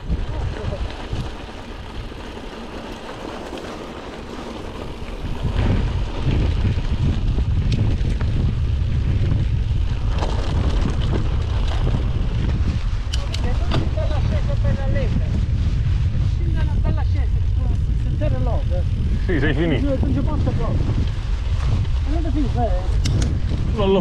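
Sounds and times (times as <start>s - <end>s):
bike tyre and trail noise: 0.0s - 24.0s
wind buffeting microphone: 0.0s - 24.0s
sharp clicks and rattles: 9.8s - 14.4s, 21.8s - 23.7s.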